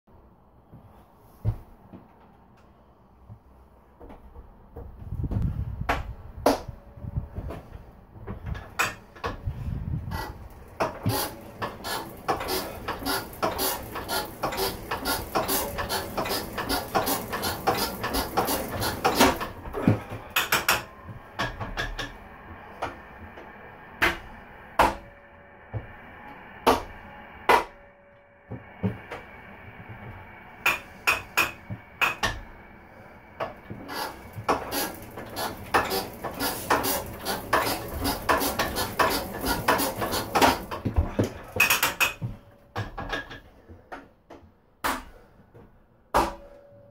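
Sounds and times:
engine hand-crank clicking: 0:10.8 - 0:22.1, 0:33.9 - 0:40.8.

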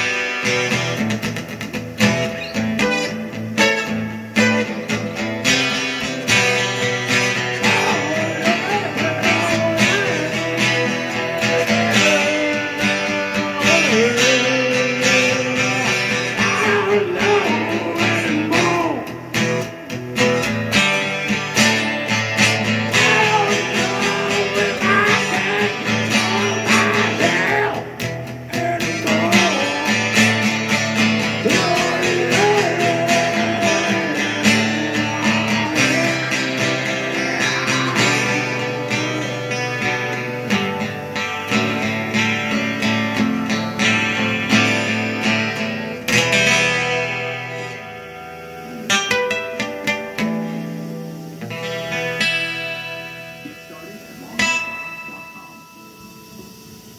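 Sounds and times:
strummed acoustic guitar: 0:00.0 - 0:56.9
man singing: 0:05.6 - 0:19.8, 0:20.4 - 0:47.9.

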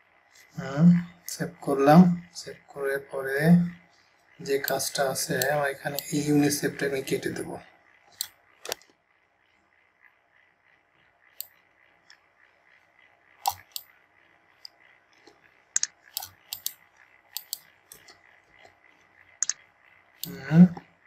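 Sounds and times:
computer mouse clicking: 0:04.6 - 0:06.6, 0:08.2 - 0:08.9, 0:11.3 - 0:12.2, 0:13.4 - 0:13.9, 0:14.5 - 0:20.9.

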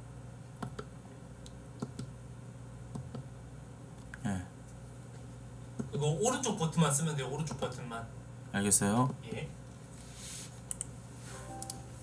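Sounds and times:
steady low hum: 0:00.0 - 0:12.0
computer mouse clicks: 0:00.6 - 0:02.1, 0:02.9 - 0:03.3, 0:10.7 - 0:10.9.

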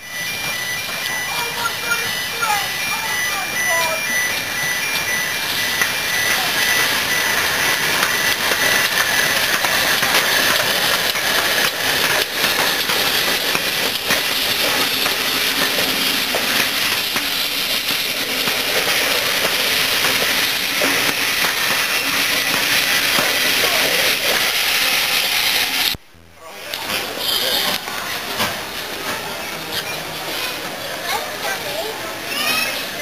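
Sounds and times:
steam hissing: 0:00.0 - 0:26.0
train rumbling: 0:00.0 - 0:33.0
wheel clicks on rail joints: 0:04.2 - 0:24.6.

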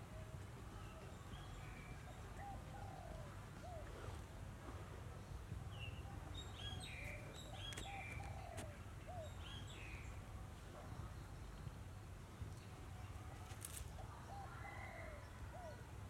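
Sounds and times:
small birds chirping: 0:05.8 - 0:10.2.

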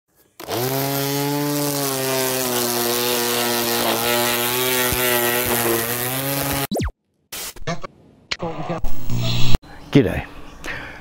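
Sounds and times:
electric motor spinning up: 0:00.4 - 0:06.7.

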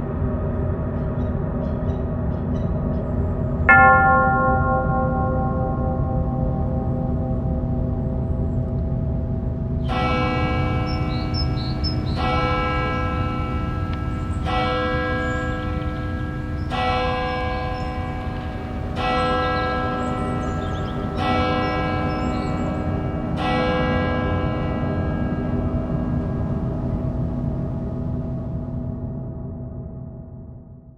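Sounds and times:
church bell tolling: 0:03.7 - 0:29.0
low steady rumble: 0:04.8 - 0:10.9, 0:24.2 - 0:29.2.

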